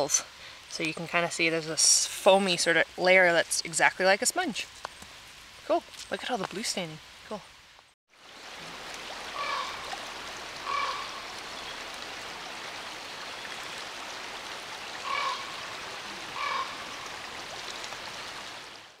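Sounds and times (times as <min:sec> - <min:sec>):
running water: 0:00.0 - 0:19.0
short animal calls: 0:10.6 - 0:11.2, 0:16.1 - 0:16.9.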